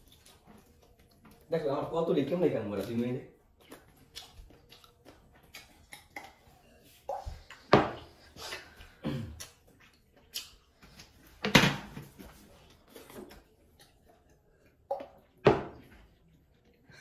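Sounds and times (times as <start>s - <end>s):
wet chewing: 0.0s - 1.7s, 2.3s - 11.4s, 12.3s - 16.8s.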